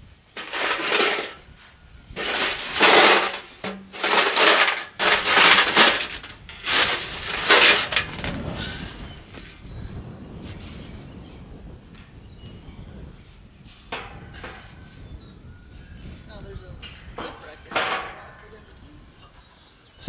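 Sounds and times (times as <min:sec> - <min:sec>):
steel panels rattling and scraping: 0:00.4 - 0:01.4, 0:02.2 - 0:08.8, 0:13.9 - 0:14.9, 0:16.8 - 0:18.8.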